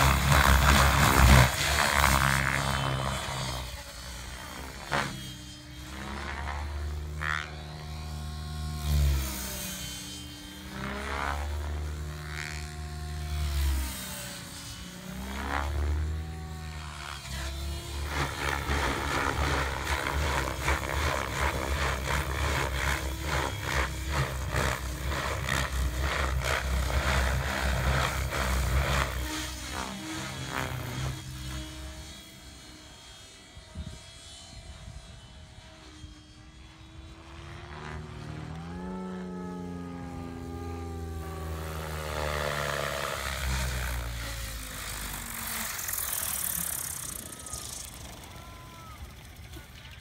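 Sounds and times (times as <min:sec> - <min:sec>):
rc helicopter rotor chopping: 0:00.0 - 0:50.0.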